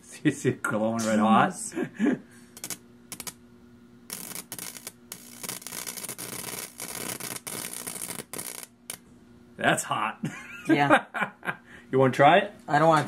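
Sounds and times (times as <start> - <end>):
electric arc crackling: 2.5 - 3.4, 4.0 - 9.1.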